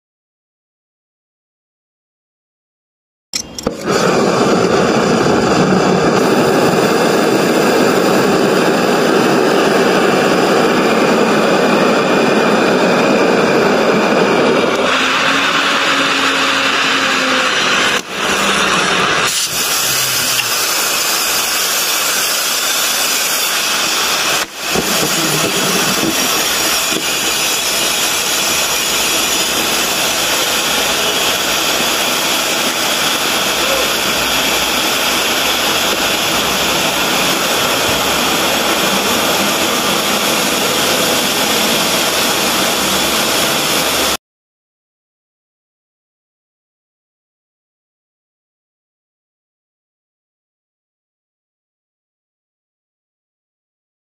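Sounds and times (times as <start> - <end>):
cutting torch flame hissing: 3.5 - 44.2.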